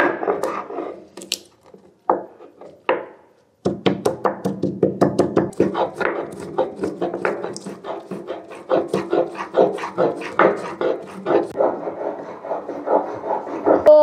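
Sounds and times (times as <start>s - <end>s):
spices pounded by hand: 3.6s - 11.6s.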